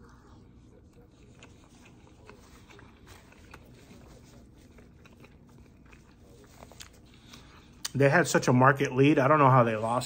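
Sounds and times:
low steady hum: 0.0s - 10.0s
chewing clicks and smacks: 0.8s - 8.0s.

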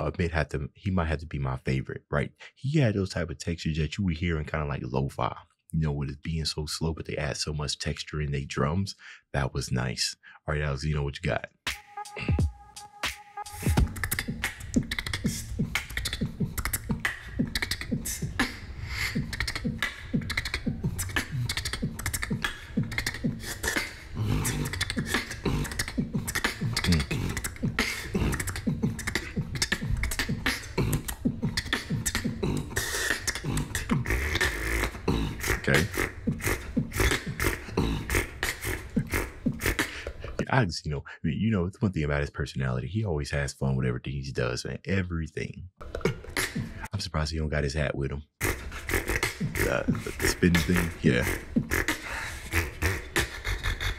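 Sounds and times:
low beatbox bass: 11.7s - 40.5s, 45.8s - 46.9s, 48.4s - 53.9s
mouth and throat clicks: 13.6s - 40.5s, 45.8s - 46.9s, 48.4s - 53.9s.

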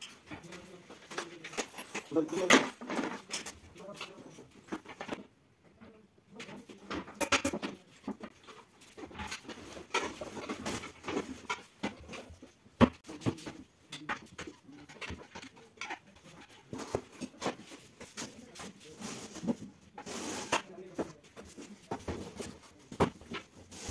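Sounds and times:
furniture panels knocking and scraping: 6.6s - 23.9s.

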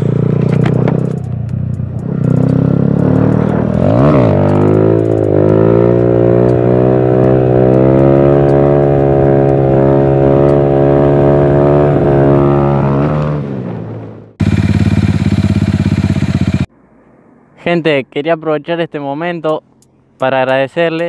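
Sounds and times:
motorcycle engine at high revs: 0.0s - 16.7s.

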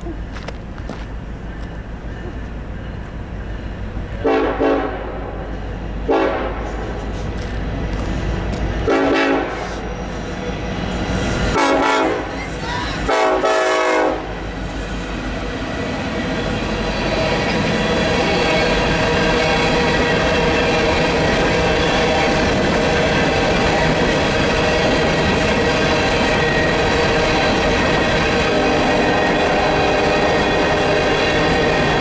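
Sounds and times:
diesel locomotive rumble: 0.0s - 32.0s
steel wheels on rail: 0.0s - 32.0s
locomotive air horn blasts: 4.2s - 5.4s, 6.0s - 6.9s, 8.8s - 9.9s, 11.5s - 12.3s, 13.0s - 14.4s, 28.3s - 32.0s.

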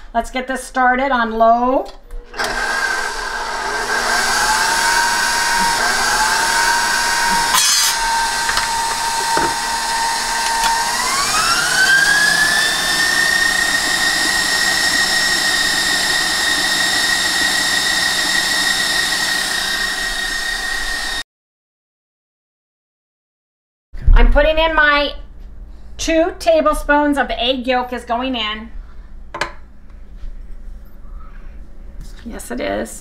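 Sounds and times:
mixer click: 2.1s - 3.1s, 5.2s - 11.4s
stand mixer motor whine: 2.2s - 21.2s.

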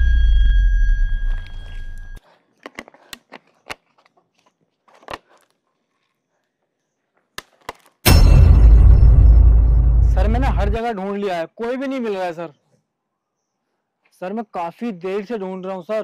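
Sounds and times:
plastic water bottle crackling: 1.6s - 6.2s
loud bass-heavy sound: 8.1s - 10.8s.

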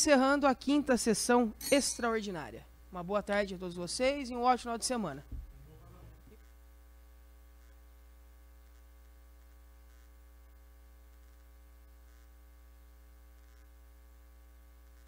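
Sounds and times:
low electrical hum: 0.0s - 15.0s
faint ticks: 11.1s - 12.3s, 13.3s - 13.8s.

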